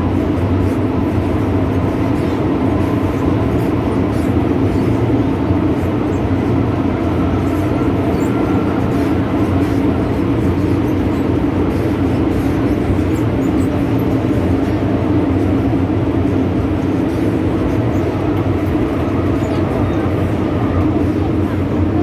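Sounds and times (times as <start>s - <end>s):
train wheels rumbling on track: 0.0s - 22.0s.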